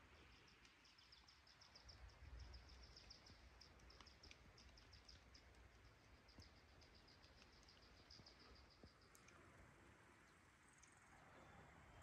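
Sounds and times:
small bird chirping: 0.1 - 9.4
faint low rumble: 1.6 - 12.0.

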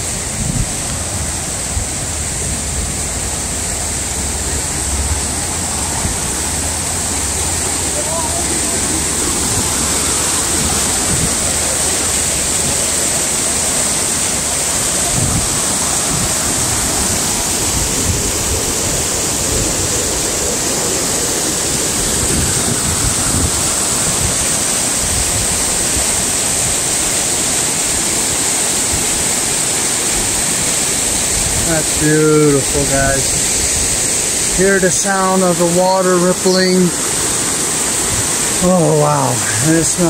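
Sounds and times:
low water rumbles: 0.0 - 40.0
river water rushing: 0.0 - 40.0.

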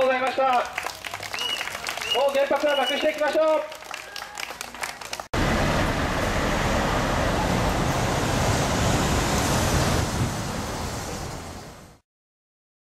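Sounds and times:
city street traffic roar: 5.3 - 12.0.

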